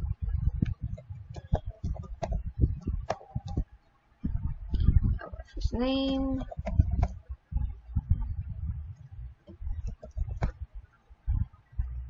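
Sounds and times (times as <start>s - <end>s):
computer keyboard typing: 1.4s - 2.4s, 9.8s - 10.6s.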